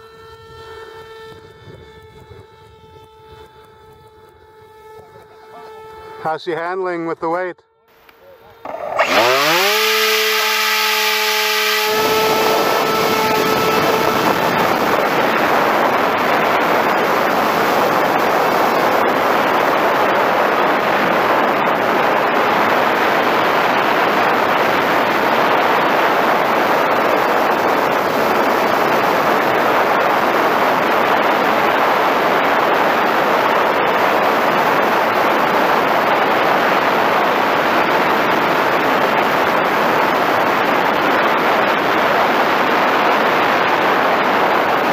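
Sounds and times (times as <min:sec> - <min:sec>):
electric motor whine: 0:00.0 - 0:06.5, 0:07.7 - 0:44.9
wind rushing: 0:09.0 - 0:44.9.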